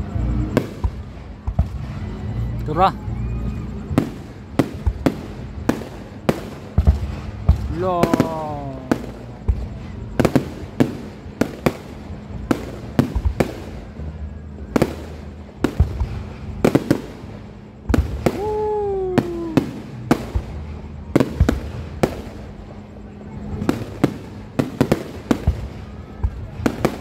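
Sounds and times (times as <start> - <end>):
falling whistle-like tone: 2.0 - 3.9.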